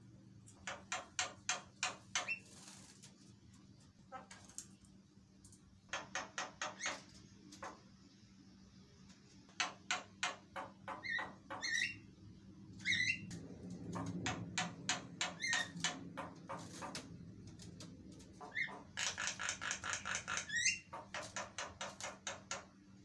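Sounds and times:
myna bird calling: 0:09.6 - 0:12.1, 0:18.3 - 0:22.5.

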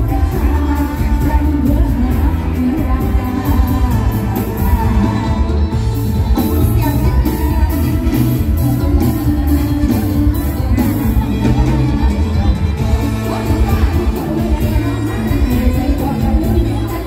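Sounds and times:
live band playing over loudspeakers: 0:00.0 - 0:17.0
person singing: 0:00.0 - 0:17.0
strong bass: 0:00.0 - 0:17.0.

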